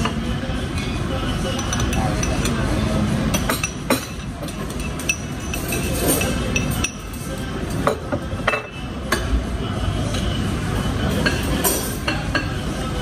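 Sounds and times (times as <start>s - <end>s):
low background hum: 0.0s - 13.0s
cutlery clinking on plates: 0.8s - 2.6s, 3.3s - 9.4s, 11.0s - 12.6s.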